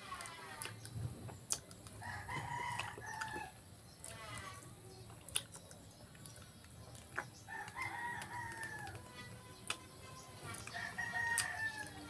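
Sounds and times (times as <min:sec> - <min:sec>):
rooster crowing: 0:10.7 - 0:12.0.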